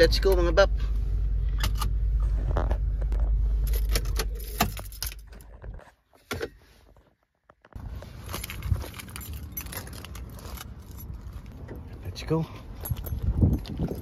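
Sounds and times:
car engine humming: 0:00.0 - 0:05.6
keys jangling and clicking: 0:03.7 - 0:05.4, 0:08.3 - 0:11.6, 0:12.7 - 0:14.0.

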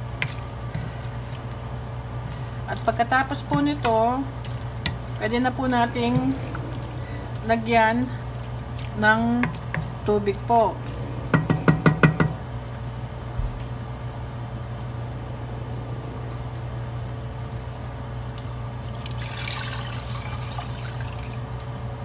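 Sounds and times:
low hum: 0:00.0 - 0:18.7
water pouring into pot: 0:18.9 - 0:22.0.

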